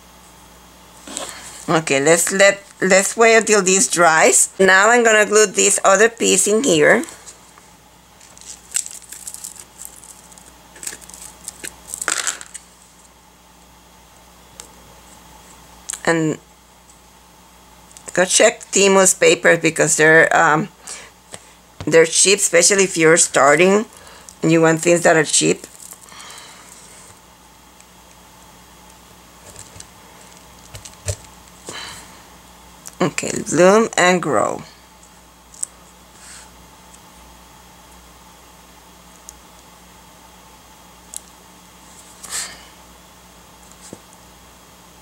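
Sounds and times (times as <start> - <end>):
low room hum: 0.0 - 45.0
paper rustling and crinkling: 8.2 - 13.1.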